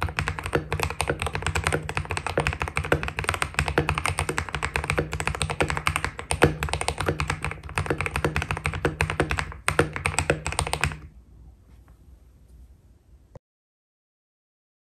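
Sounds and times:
fast typing on mechanical keyboard: 0.0 - 11.1.

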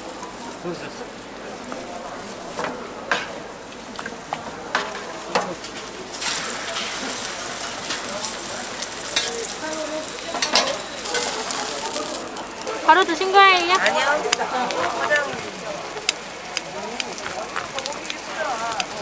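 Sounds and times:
cooking utensil clicks and scrapes: 4.7 - 12.8
beef sizzling as it fries: 4.9 - 19.0.

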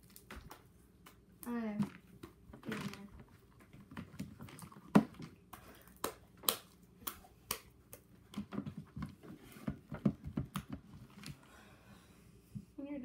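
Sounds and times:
slime clicking and popping: 5.4 - 8.1.

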